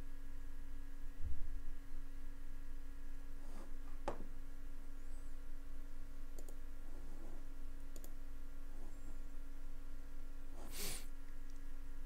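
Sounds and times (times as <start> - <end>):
background hum: 0.0 - 12.0
computer mouse clicks: 6.3 - 6.6, 7.9 - 8.2.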